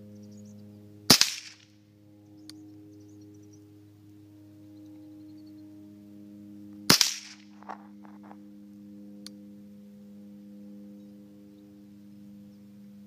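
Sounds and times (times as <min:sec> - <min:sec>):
rifle shot: 0:01.1 - 0:01.7, 0:06.9 - 0:07.8
small click: 0:02.4 - 0:02.6.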